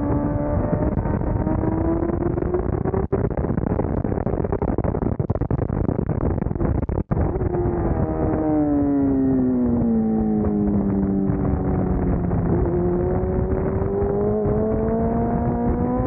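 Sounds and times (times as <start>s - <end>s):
motorcycle engine: 0.0s - 3.2s, 7.1s - 16.0s.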